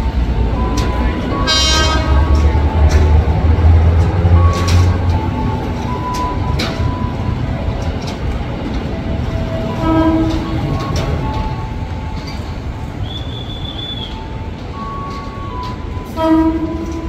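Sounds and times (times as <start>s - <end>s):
electric train running: 0.0s - 17.0s
short pitched tone: 0.6s - 3.3s.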